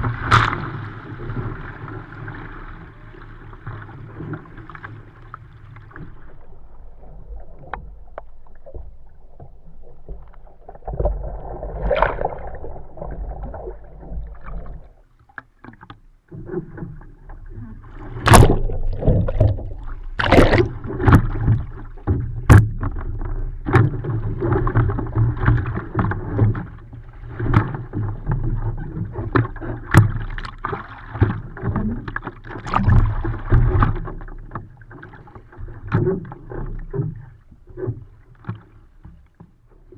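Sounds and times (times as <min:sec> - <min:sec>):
paddle splashes: 0:00.0 - 0:39.9
water sloshing around boat: 0:00.0 - 0:39.9
knocks on hull: 0:18.2 - 0:26.7.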